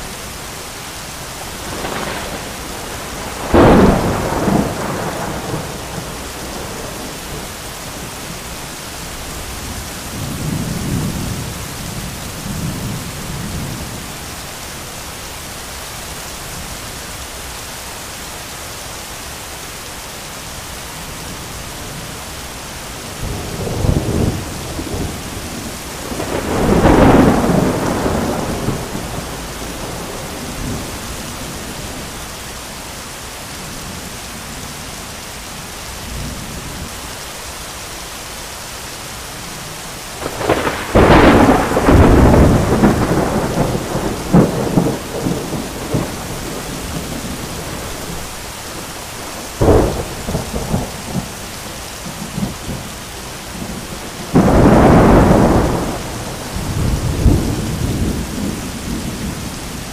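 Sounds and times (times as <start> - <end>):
heavy rain: 0.0 - 59.9
thunder rumbling and cracking: 1.4 - 8.5, 23.1 - 32.2, 40.2 - 52.9, 53.5 - 59.9.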